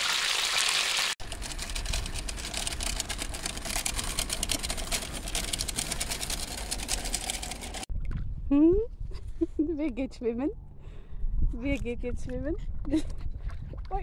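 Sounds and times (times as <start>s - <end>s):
shopping cart rattling over paving: 1.2s - 7.9s.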